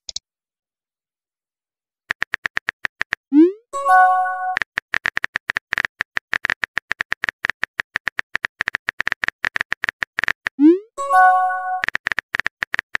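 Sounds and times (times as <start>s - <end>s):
phone keyboard typing clicks: 2.1s - 3.2s, 4.5s - 10.6s, 11.8s - 13.0s.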